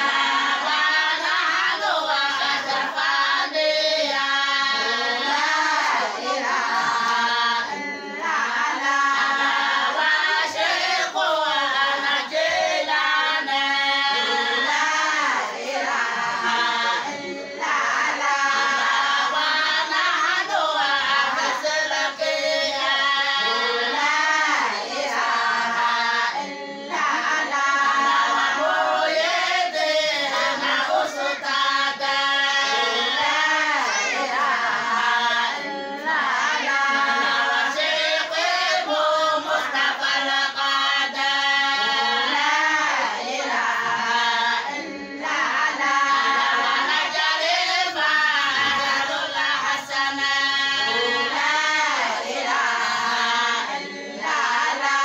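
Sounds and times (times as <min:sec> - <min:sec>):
women singing together: 0:00.0 - 0:55.0.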